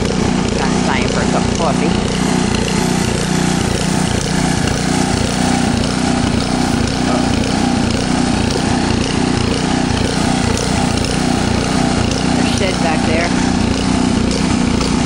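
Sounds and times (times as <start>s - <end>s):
small gasoline engine running: 0.0s - 15.0s.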